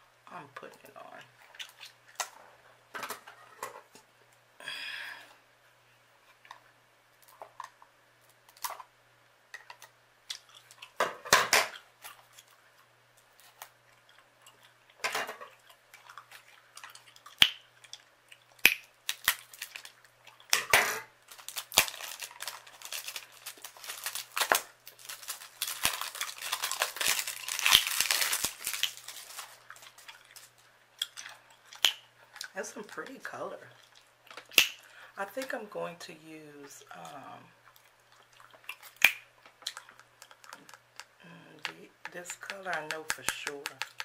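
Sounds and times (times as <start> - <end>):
plastic wrap crinkling: 18.6 - 34.8.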